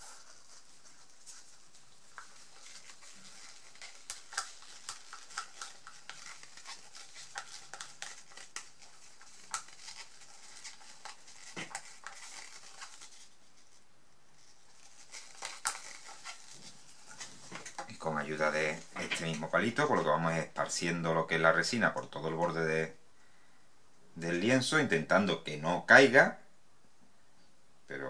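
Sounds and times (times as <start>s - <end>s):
stir stick scraping plastic cup: 0.0s - 13.0s, 15.1s - 20.1s.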